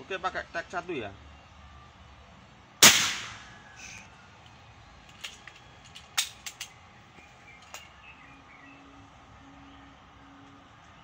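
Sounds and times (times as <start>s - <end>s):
air rifle handling clicks: 5.1s - 6.8s.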